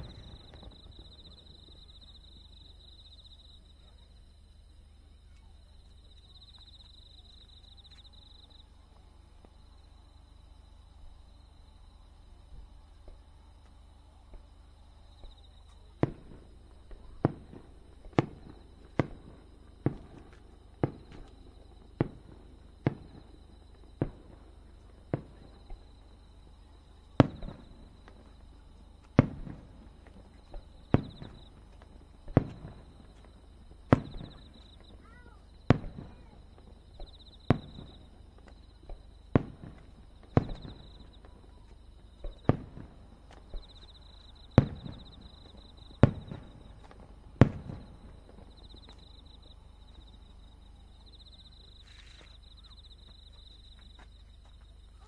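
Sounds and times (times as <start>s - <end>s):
fireworks bangs: 0.0s - 2.3s, 11.0s - 50.3s.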